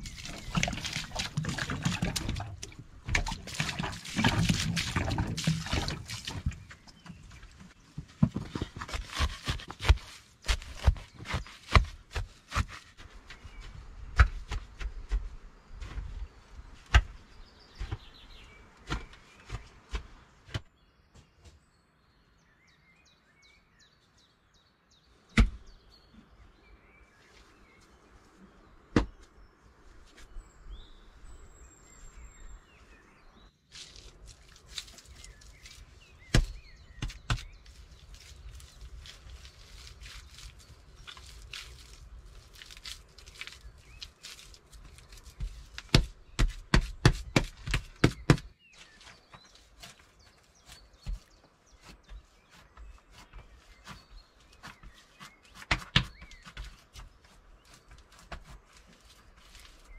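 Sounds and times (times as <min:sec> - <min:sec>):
digging tool chopping earth: 0:00.0 - 0:06.6, 0:08.2 - 0:13.1, 0:14.0 - 0:15.3, 0:16.9 - 0:20.7, 0:25.4 - 0:25.7, 0:34.6 - 0:48.6, 0:49.8 - 0:57.2
soil thumps: 0:00.0 - 0:21.6, 0:25.3 - 0:25.7, 0:28.9 - 0:29.3, 0:33.7 - 0:59.9.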